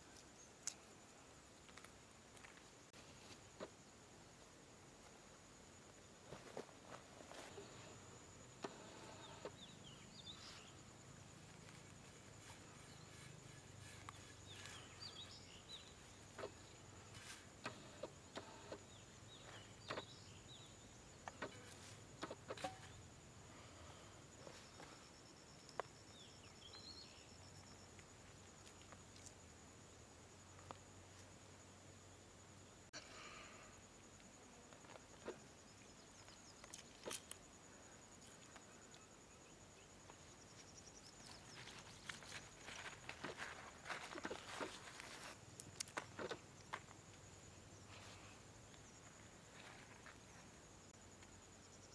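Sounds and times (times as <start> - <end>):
high insect drone: 0.0 - 51.9
birds chirping: 11.6 - 23.0.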